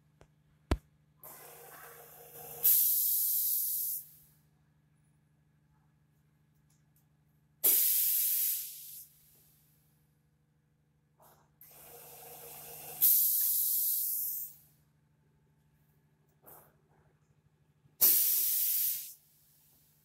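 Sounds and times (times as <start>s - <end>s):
compressed air hissing: 2.6s - 4.2s, 7.6s - 9.2s, 13.0s - 14.6s, 18.0s - 19.2s.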